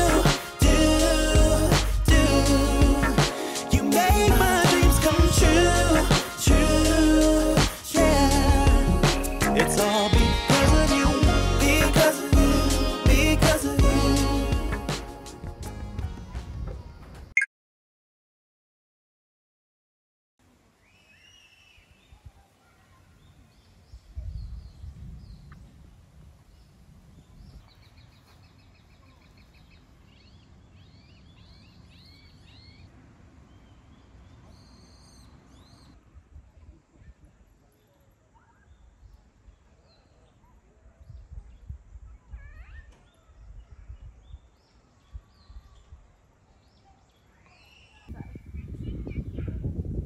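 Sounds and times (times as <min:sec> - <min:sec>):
wind rumbling on microphone: 0:23.8 - 0:28.2, 0:48.1 - 0:50.0
birds chirping and singing: 0:47.1 - 0:49.8.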